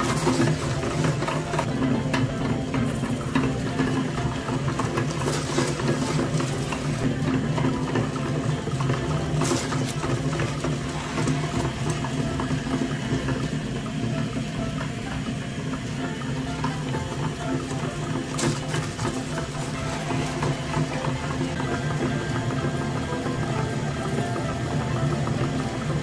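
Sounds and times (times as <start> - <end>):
crackles of grinding cones: 0.0 - 26.0
meat grinder motor hum: 0.0 - 26.0.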